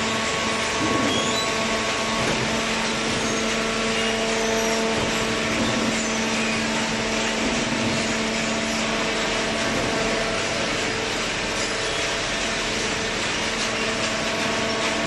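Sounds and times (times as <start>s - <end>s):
baler machine hum: 0.0s - 15.0s
conveyor whir: 0.0s - 15.0s.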